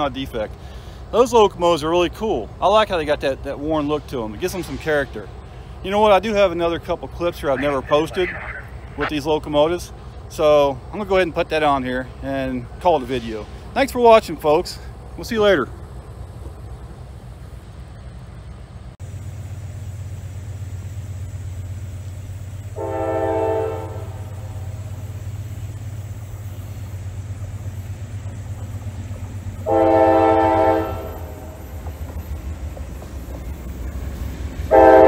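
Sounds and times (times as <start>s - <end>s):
low train rumble: 0.0s - 35.0s
locomotive air horn blasts: 22.8s - 24.7s, 29.6s - 31.6s, 34.7s - 35.0s.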